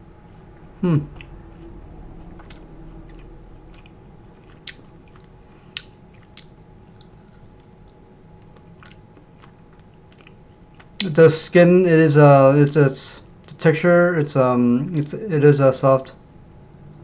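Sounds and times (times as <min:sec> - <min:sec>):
low steady hum: 0:00.0 - 0:17.0
person chewing crunchy food: 0:00.1 - 0:11.2.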